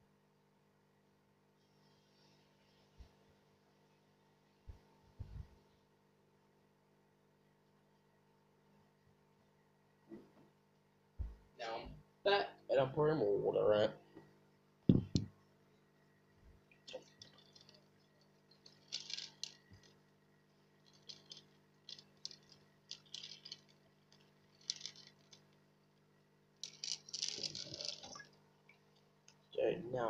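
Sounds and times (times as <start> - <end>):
sharp knock: 14.9 - 15.3
water pouring into a fish tank: 16.8 - 29.2.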